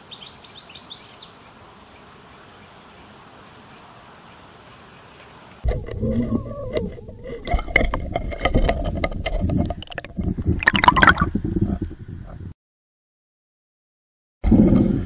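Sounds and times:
water gurgling and splashing: 0:05.6 - 0:12.4.

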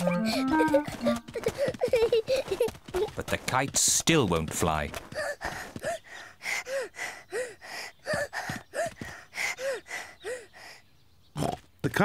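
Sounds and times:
cartoon girl panting: 0:00.0 - 0:03.2, 0:05.1 - 0:10.8.

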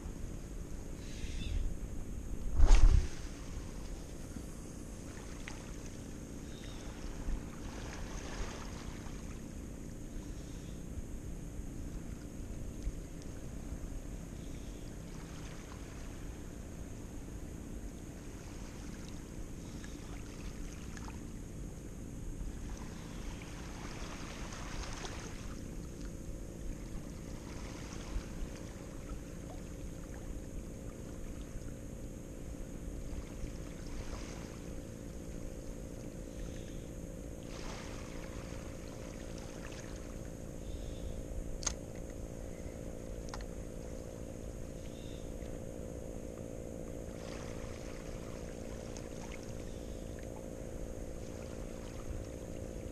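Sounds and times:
steady low drone: 0:00.0 - 0:52.9
wind on microphone: 0:01.1 - 0:04.5
light clicks: 0:41.6 - 0:42.2.

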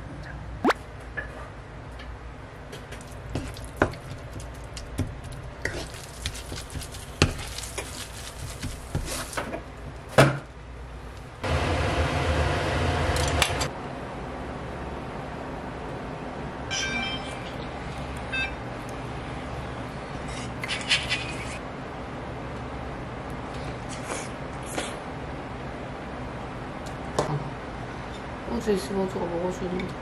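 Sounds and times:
low sizzle: 0:02.7 - 0:13.7.

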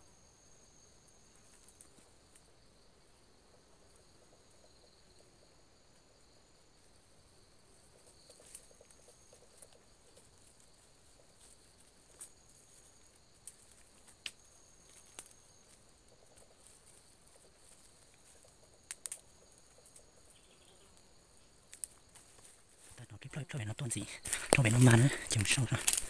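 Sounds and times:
faint insect buzz: 0:00.0 - 0:26.0
dry leaves crackling underfoot: 0:21.7 - 0:23.1, 0:24.0 - 0:26.0.

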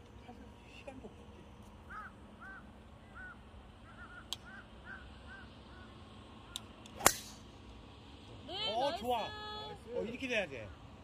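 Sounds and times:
bird calling in short arched notes: 0:01.9 - 0:06.6
golf club striking ball: 0:06.5 - 0:07.5.

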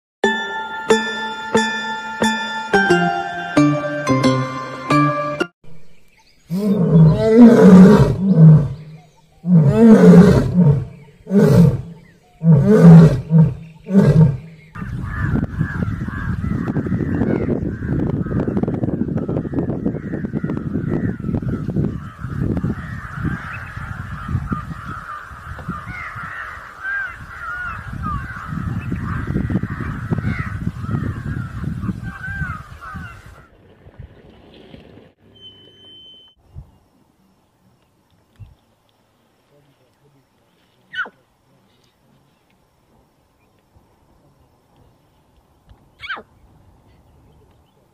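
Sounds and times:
birds chirping: 0:00.2 - 0:33.5
lion roaring: 0:06.5 - 0:14.5.

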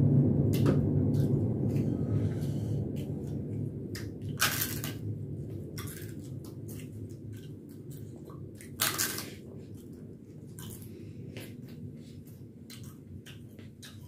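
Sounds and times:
crunchy food being chewed: 0:03.0 - 0:14.0.

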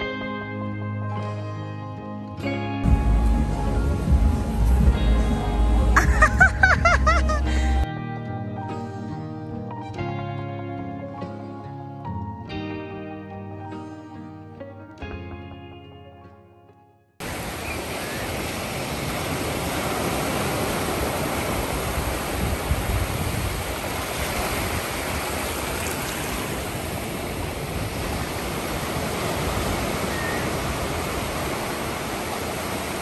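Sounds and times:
waves breaking on beach: 0:17.2 - 0:33.0.

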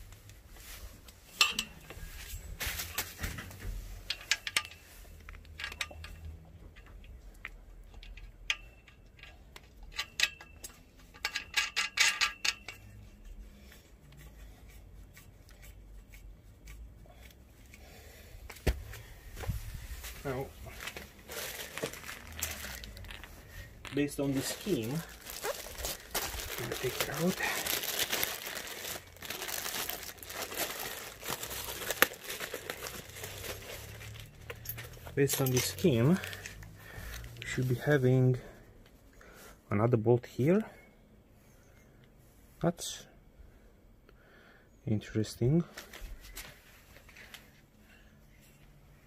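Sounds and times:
plastic bag crinkling: 0:20.3 - 0:36.6.

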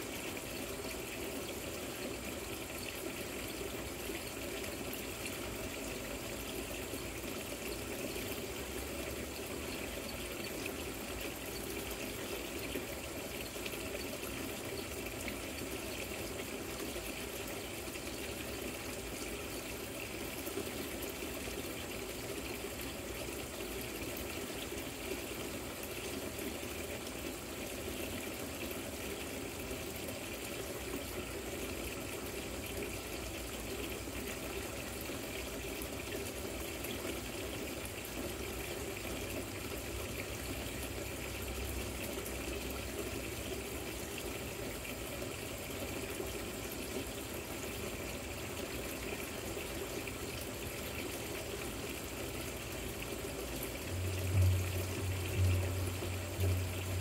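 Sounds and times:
fountain water splashing over stones: 0:00.0 - 0:57.0
low hum: 0:53.8 - 0:57.0.

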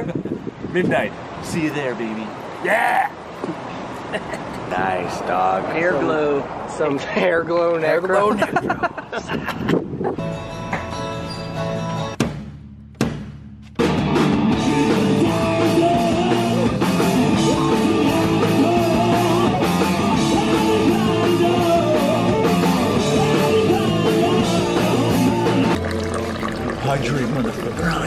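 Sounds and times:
bass guitar: 0:10.2 - 0:12.6, 0:13.6 - 0:28.0
drums: 0:11.8 - 0:25.8
distorted electric guitars: 0:13.8 - 0:25.9
person singing: 0:14.5 - 0:25.7.

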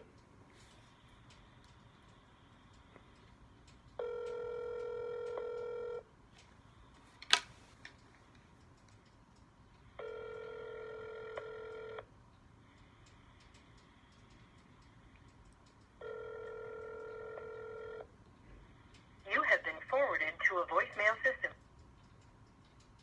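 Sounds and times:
telephone ringback tone: 0:04.0 - 0:06.1, 0:10.0 - 0:12.1, 0:16.0 - 0:18.1.

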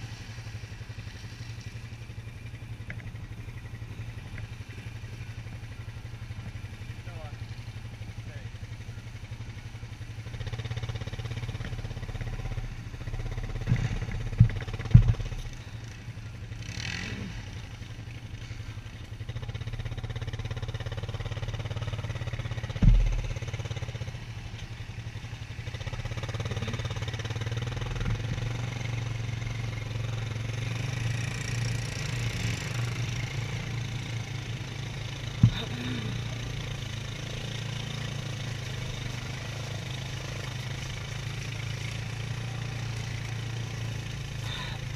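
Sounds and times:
atv engine humming: 0:00.0 - 0:44.9
sharp knocks: 0:22.8 - 0:23.4.

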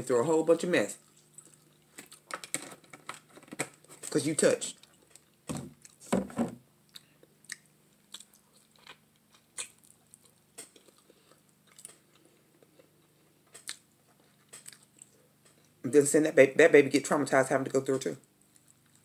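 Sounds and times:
person chewing meat: 0:01.0 - 0:02.4, 0:06.8 - 0:15.8, 0:18.4 - 0:19.0.

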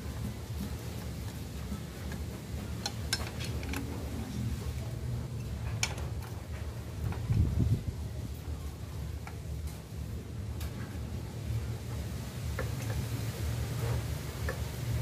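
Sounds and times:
steady low hum: 0:00.0 - 0:15.0
metallic clicks and taps: 0:02.8 - 0:03.9.

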